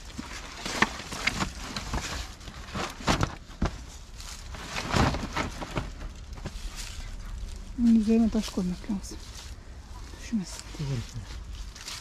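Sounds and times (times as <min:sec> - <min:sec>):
objects knocking and scraping: 0:00.0 - 0:06.9.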